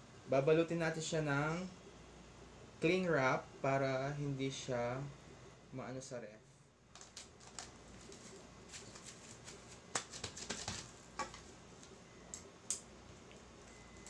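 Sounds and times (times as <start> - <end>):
cling wrap crinkling: 6.9 - 11.0.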